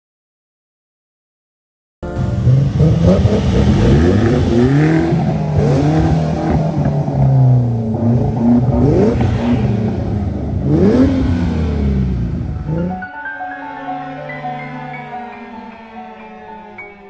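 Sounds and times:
engine revving: 2.1s - 13.0s
sports car engine idling: 2.1s - 13.0s.

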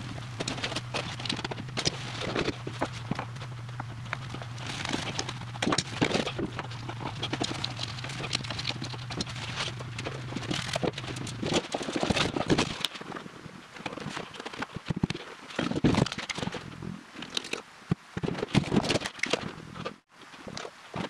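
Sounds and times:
low hum: 0.0s - 14.4s
clicks and scraping of filters: 0.0s - 21.0s.

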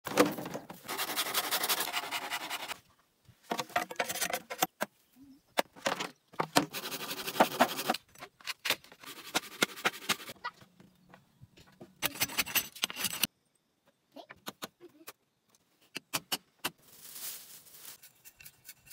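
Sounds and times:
dry crackling and rustling: 16.7s - 18.2s.

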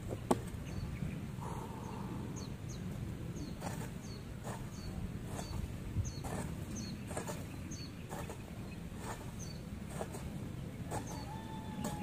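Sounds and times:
small birds chirping: 0.0s - 12.0s
hoe chopping into ground: 6.2s - 12.0s.

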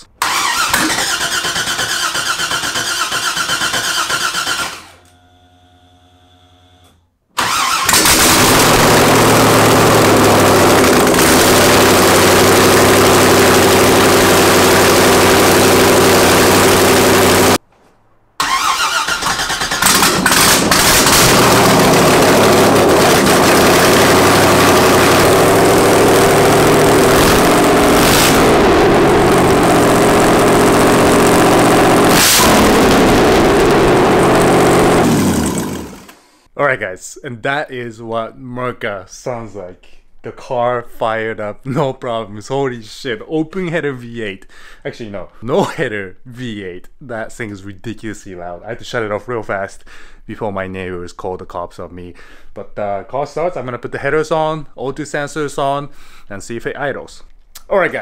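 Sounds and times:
loud open exhaust engine running: 7.9s - 17.6s, 19.8s - 36.2s.

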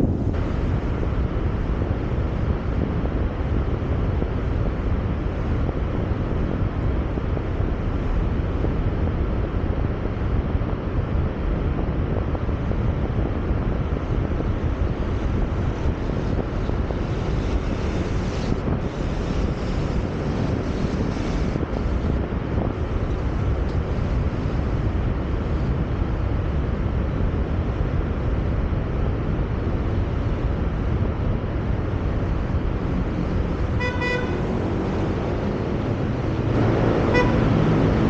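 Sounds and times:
road and traffic noise: 0.0s - 38.0s
wind rush on microphone: 0.0s - 38.0s.

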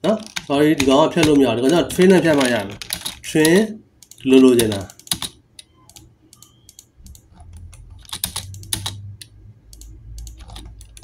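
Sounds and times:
computer keyboard keystrokes: 0.2s - 11.0s.

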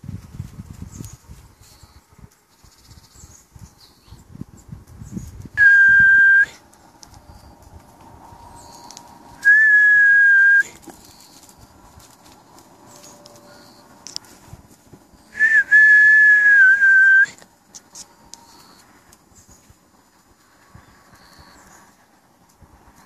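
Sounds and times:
high whistle blasts: 5.6s - 6.6s, 9.4s - 10.7s, 15.3s - 17.4s.

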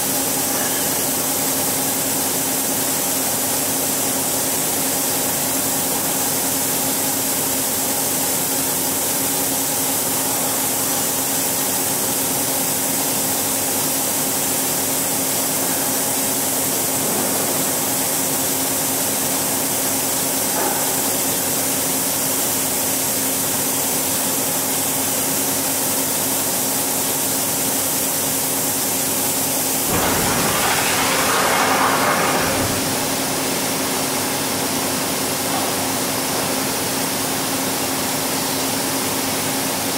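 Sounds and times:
rushing hiss of door opening: 29.9s - 33.7s
even hiss: 29.9s - 33.8s.

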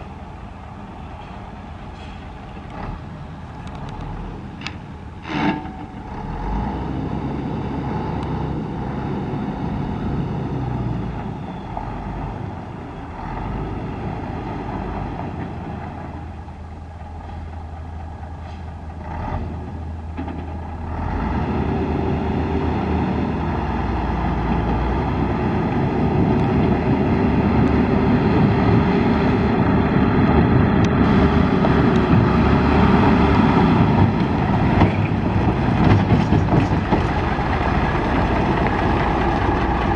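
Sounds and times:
truck diesel engine running: 0.0s - 39.9s.

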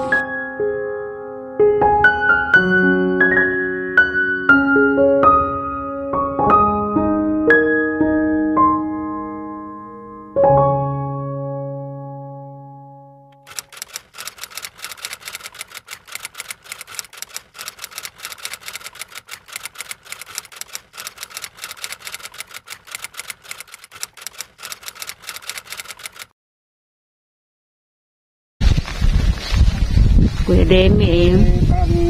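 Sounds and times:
typewriter key clicks: 13.4s - 26.3s.

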